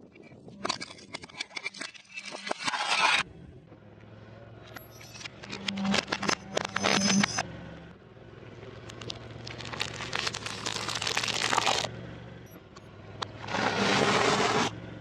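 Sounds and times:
car tyre crushing crunchy snacks: 0:08.7 - 0:11.9.

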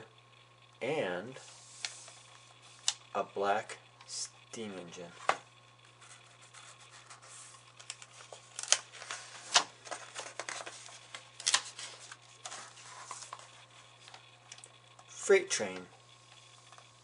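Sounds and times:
faint steady hum: 0:00.0 - 0:17.0
book pages rustling and turning: 0:01.5 - 0:03.0, 0:05.2 - 0:14.4
sharp page snaps: 0:07.8 - 0:10.7, 0:11.4 - 0:11.8.

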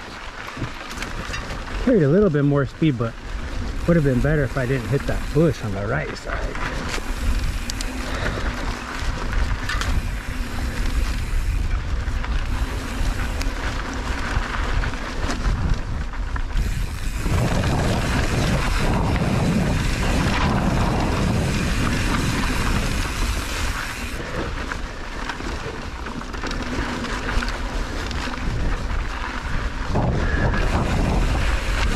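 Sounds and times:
bike clicking over ground: 0:00.0 - 0:31.9
bike tyre roar on dirt trail: 0:00.0 - 0:31.9
wind buffeting microphone: 0:00.0 - 0:31.9.

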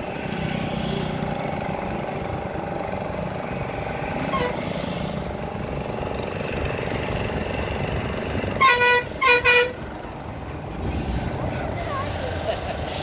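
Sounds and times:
moving vehicle running noise: 0:00.0 - 0:13.0
vehicle horn honks: 0:08.6 - 0:09.8.

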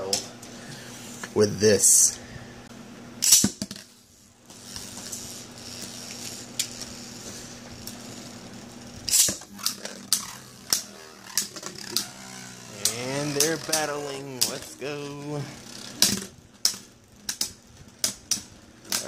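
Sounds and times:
spinning top whirring: 0:03.2 - 0:19.0
spinning tops clacking: 0:09.1 - 0:19.0.

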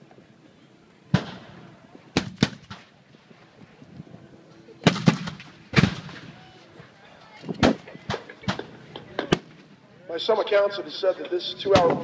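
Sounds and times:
cannons firing: 0:01.1 - 0:01.6, 0:02.2 - 0:02.9, 0:04.8 - 0:06.3.

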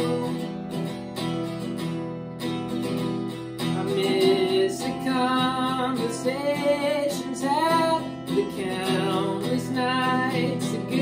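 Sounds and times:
man singing: 0:00.0 - 0:00.6, 0:03.7 - 0:11.0
guitar strumming chords: 0:00.0 - 0:11.0.

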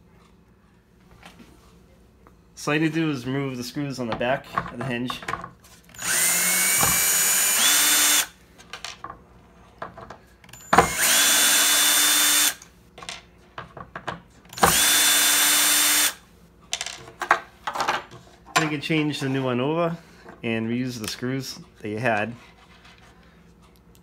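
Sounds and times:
cordless drill whine: 0:05.9 - 0:08.4, 0:10.5 - 0:12.6, 0:14.5 - 0:16.2.

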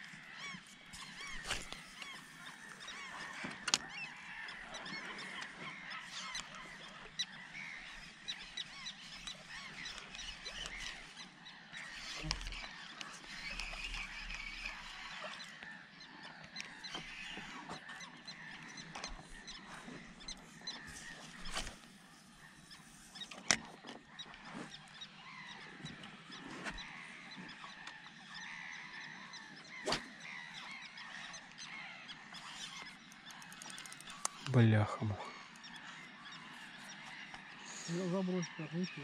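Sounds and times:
sharp clicks: 0:33.1 - 0:34.6.

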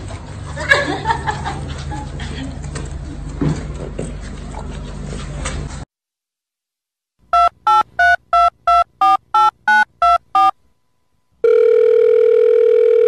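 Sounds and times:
keypad dialing beeps: 0:07.4 - 0:10.6
telephone ringing tone: 0:11.4 - 0:13.0.

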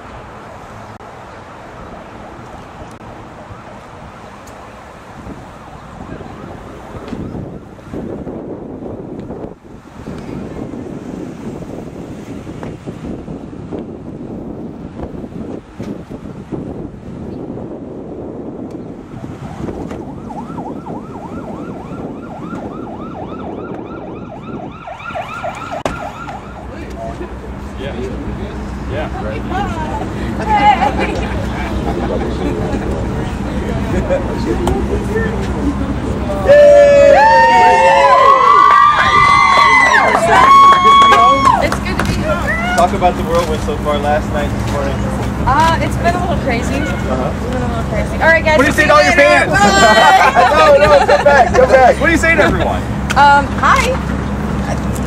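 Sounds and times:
wind rumble on microphone: 0:01.8 - 0:55.0
emergency siren yelping: 0:19.2 - 0:27.1, 0:36.4 - 0:41.7.

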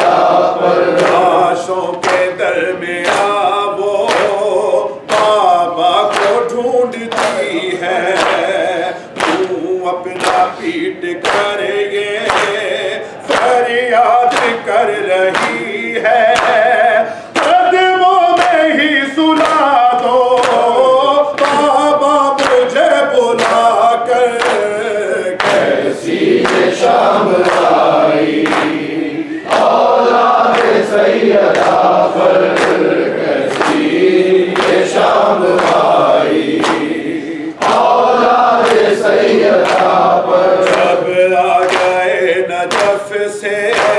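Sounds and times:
lead reciter chanting: 0:00.0 - 0:43.9
men chanting in chorus: 0:00.0 - 0:43.9
hands beating chests: 0:25.4 - 0:40.9.

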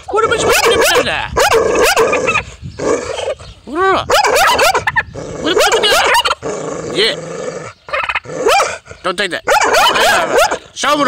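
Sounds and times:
dog barking and yelping: 0:00.2 - 0:03.4, 0:04.1 - 0:06.5, 0:07.9 - 0:10.7.

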